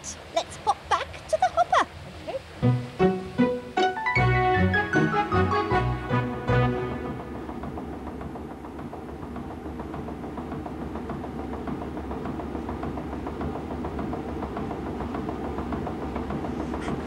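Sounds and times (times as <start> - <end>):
rapid regular clatter: 7.2 - 17.0.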